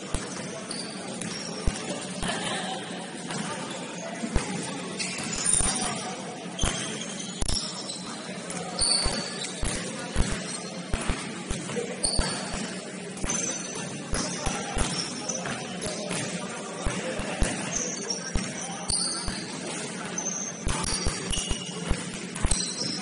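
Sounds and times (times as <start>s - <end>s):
sneaker squeaks: 0.0s - 23.0s
basketball bouncing on court: 0.1s - 2.4s, 6.6s - 7.7s, 9.0s - 19.6s, 20.6s - 23.0s.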